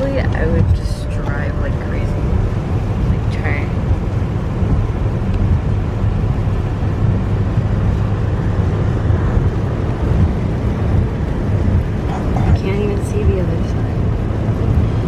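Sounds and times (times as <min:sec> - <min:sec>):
car driving on wet road: 0:00.0 - 0:15.0.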